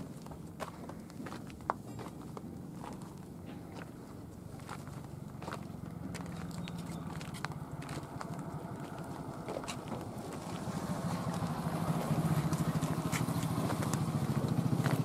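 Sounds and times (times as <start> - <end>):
footsteps on dry dirt: 0.0 - 15.0
motor engine humming: 4.9 - 15.0.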